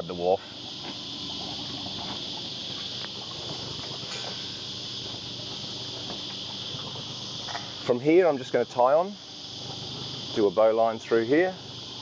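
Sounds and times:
outboard motor idling: 0.0 - 8.8
high-pitched hiss: 0.0 - 12.0.

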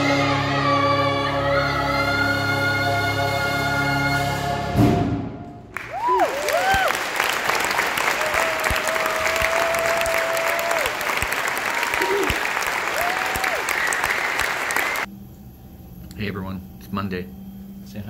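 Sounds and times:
audience applause: 5.7 - 15.1
audience whooping and cheering: 5.7 - 15.1.

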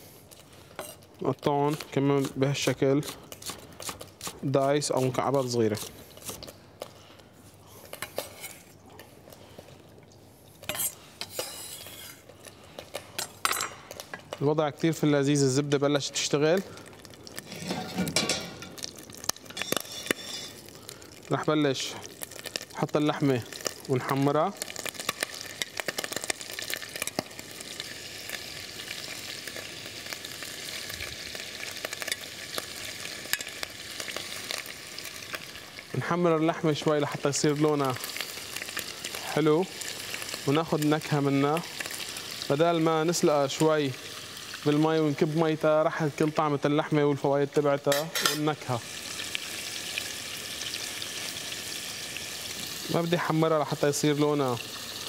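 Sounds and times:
butter sizzling in a pot: 0.0 - 6.6, 10.6 - 55.0
utensils clattering: 17.5 - 18.8.

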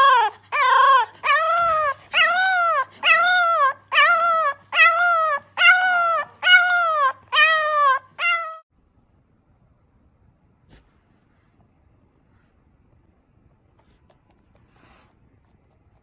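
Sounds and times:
puppy howling: 0.0 - 8.7.

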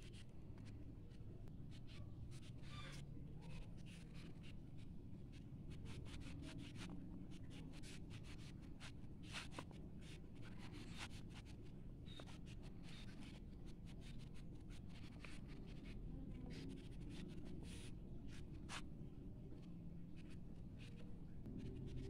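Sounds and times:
faint low background noise: 0.0 - 22.0
crayon scratching on paper: 3.8 - 18.9, 19.6 - 22.0.

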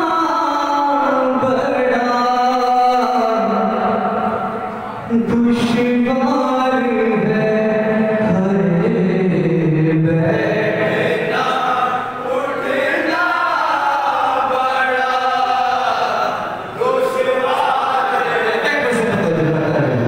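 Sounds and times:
man singing a lament: 0.0 - 4.5, 5.1 - 12.2, 13.0 - 20.0
men singing in chorus: 10.2 - 19.0.

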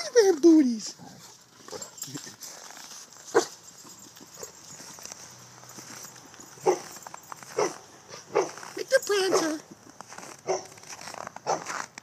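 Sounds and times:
paws moving on snow: 0.8 - 12.0
dog barking: 3.3 - 3.6, 6.6 - 6.9, 7.5 - 8.6, 9.3 - 9.6, 10.4 - 10.8, 11.4 - 11.7.

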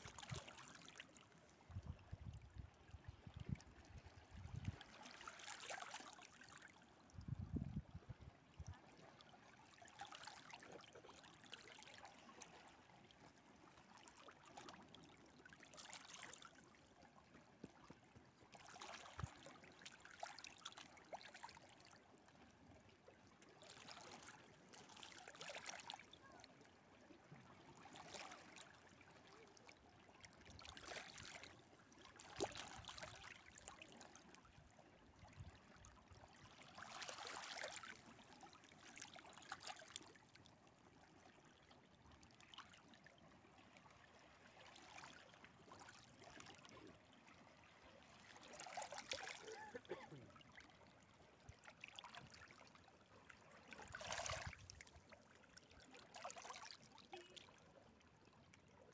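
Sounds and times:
water lapping against rocks: 48.1 - 50.4.

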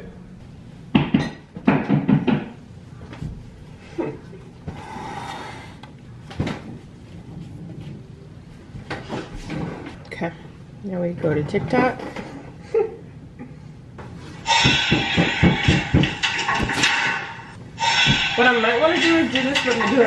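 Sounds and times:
objects knocking and clattering: 14.4 - 20.0.

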